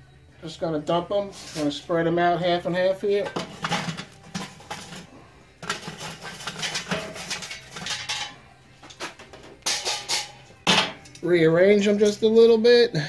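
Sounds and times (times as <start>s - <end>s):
charcoal clattering into metal grill: 3.2s - 11.2s
metal clanks: 3.2s - 11.2s.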